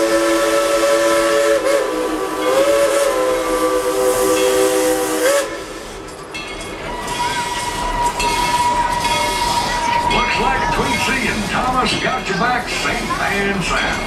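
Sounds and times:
steam locomotive chime whistle: 0:00.0 - 0:10.4
steam hissing: 0:00.0 - 0:14.0.

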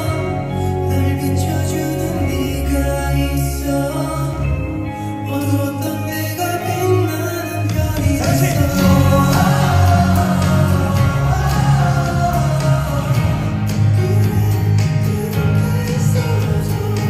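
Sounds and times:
male vocal group singing a ballad: 0:00.0 - 0:17.0
musical accompaniment: 0:00.0 - 0:17.0.

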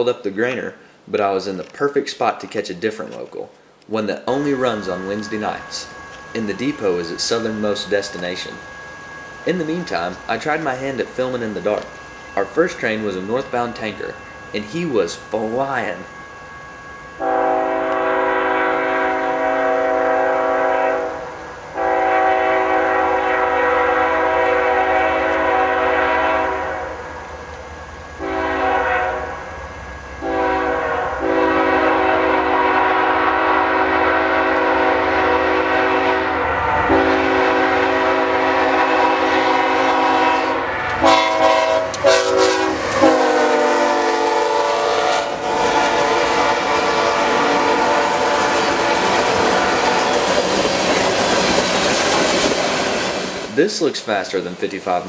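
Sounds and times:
train wheels clattering: 0:04.3 - 0:19.6, 0:45.2 - 0:54.0
locomotive air horn blasts: 0:17.2 - 0:27.0, 0:28.2 - 0:29.4, 0:30.2 - 0:50.0.

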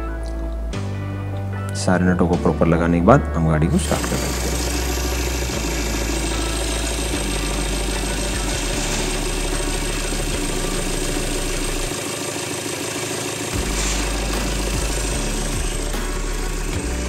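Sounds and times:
car engine idling: 0:03.8 - 0:17.0.

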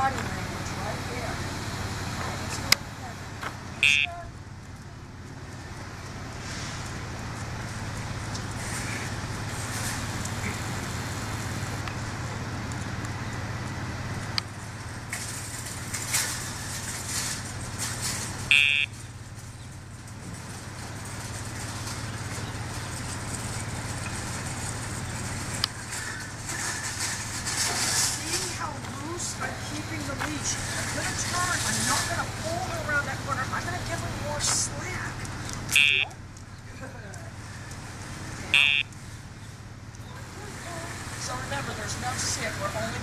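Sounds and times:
low hum of traffic: 0:00.0 - 0:43.0
short high-pitched beep: 0:03.8 - 0:04.1, 0:18.5 - 0:18.9, 0:35.7 - 0:36.1, 0:38.6 - 0:38.9.

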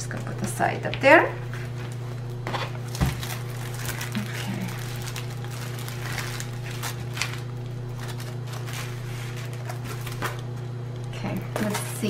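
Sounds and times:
steady low hum: 0:00.0 - 0:12.0
plastic and paper crinkling: 0:01.5 - 0:10.6, 0:11.6 - 0:12.0.

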